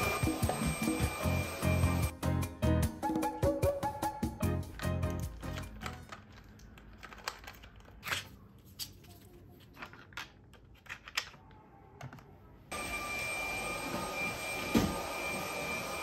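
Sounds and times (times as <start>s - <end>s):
plastic tiles clicking: 4.8s - 8.0s.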